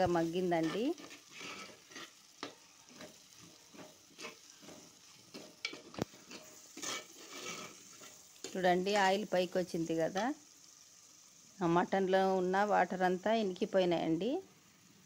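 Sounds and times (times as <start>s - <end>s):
oil sizzling: 0.0s - 15.0s
spoon scraping clay pot: 0.4s - 8.6s.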